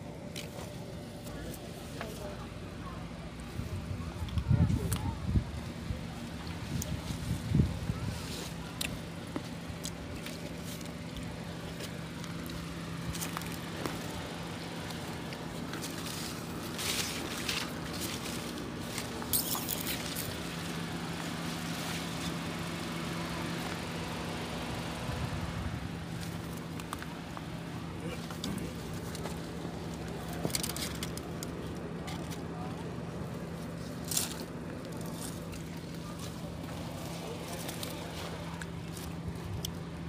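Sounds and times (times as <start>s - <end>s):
leaves rustling against phone: 6.6s - 22.6s.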